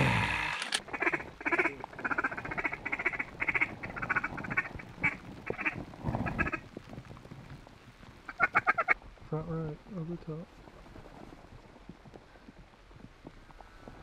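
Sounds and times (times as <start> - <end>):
ducks quacking: 0.8 - 6.6, 8.3 - 9.0.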